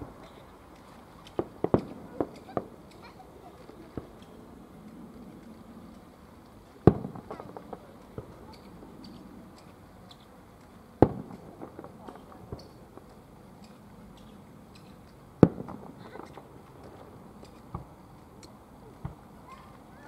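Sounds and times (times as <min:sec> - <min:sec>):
small pops and echoes: 0:00.2 - 0:05.6, 0:06.8 - 0:19.6
firework booms: 0:01.3 - 0:02.7, 0:06.8 - 0:08.4, 0:11.0 - 0:13.0, 0:15.4 - 0:16.6.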